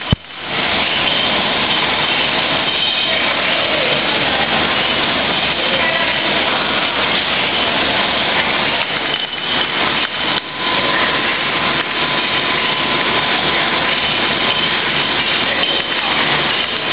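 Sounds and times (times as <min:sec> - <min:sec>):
factory machinery running: 0:00.0 - 0:16.9
faint steady whine: 0:00.0 - 0:16.9.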